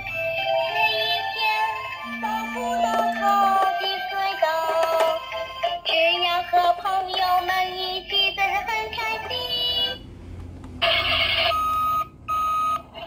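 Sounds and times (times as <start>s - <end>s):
toy electronic song with singing: 0.0s - 10.0s
long steady beeps: 2.0s - 4.1s.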